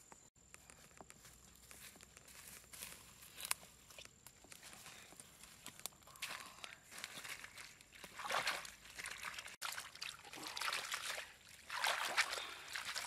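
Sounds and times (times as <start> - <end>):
water sloshing and trickling: 6.9 - 13.0.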